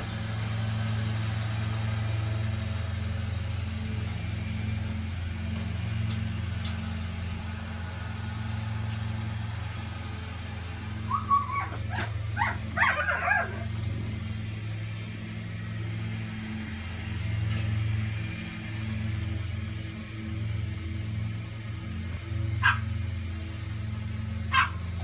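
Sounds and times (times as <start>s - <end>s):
steady low hum: 0.0s - 25.0s
small dog yipping and whimpering: 11.1s - 13.6s.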